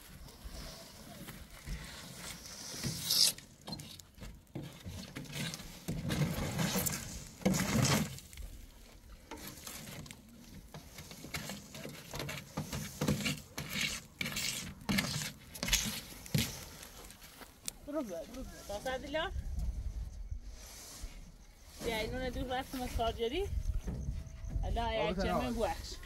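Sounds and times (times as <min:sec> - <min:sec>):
sand and gravel scraped on metal: 0:00.4 - 0:19.3, 0:20.3 - 0:23.6, 0:25.0 - 0:26.0.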